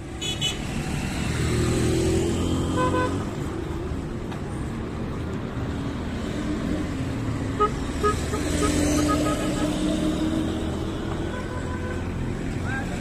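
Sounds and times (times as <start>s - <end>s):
car horn toot: 0.2s - 0.6s, 2.8s - 3.2s, 7.6s - 9.9s, 11.2s - 12.1s.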